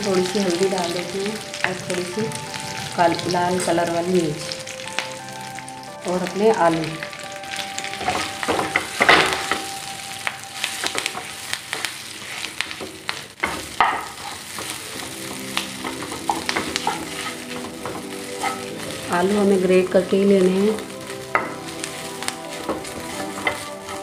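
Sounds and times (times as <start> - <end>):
potato sizzling in hot oil: 0.0 - 24.0
wooden spatula scraping a pan: 10.6 - 18.9, 21.3 - 24.0.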